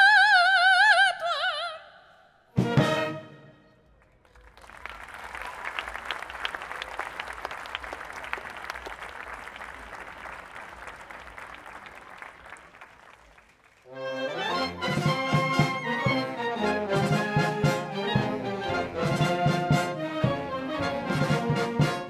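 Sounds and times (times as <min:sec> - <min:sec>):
concert wind band playing: 0:02.6 - 0:03.7, 0:13.9 - 0:22.0
audience applauding: 0:03.8 - 0:16.2.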